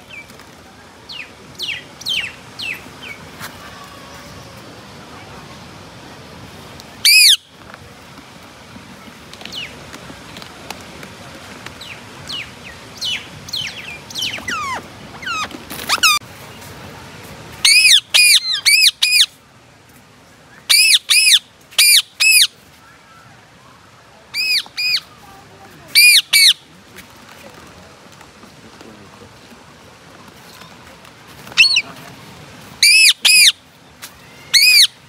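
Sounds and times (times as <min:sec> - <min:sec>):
parakeets chirping: 0:07.0 - 0:07.4, 0:11.8 - 0:16.2, 0:17.6 - 0:19.3, 0:20.7 - 0:22.5, 0:26.0 - 0:26.6, 0:31.6 - 0:31.9, 0:32.8 - 0:33.6, 0:34.5 - 0:35.0
parakeets screeching: 0:07.0 - 0:07.4, 0:13.6 - 0:16.2, 0:17.6 - 0:19.3, 0:26.0 - 0:26.6, 0:32.8 - 0:33.6, 0:34.5 - 0:35.0.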